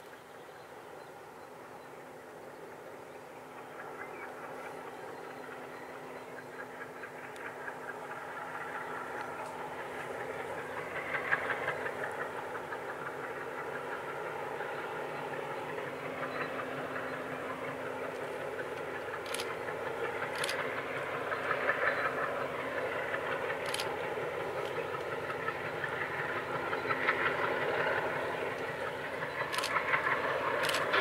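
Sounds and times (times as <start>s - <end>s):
distant locomotive engine hum: 0.0s - 31.0s
sharp clicks: 18.2s - 19.6s, 20.3s - 20.6s, 29.5s - 29.8s, 30.6s - 31.0s.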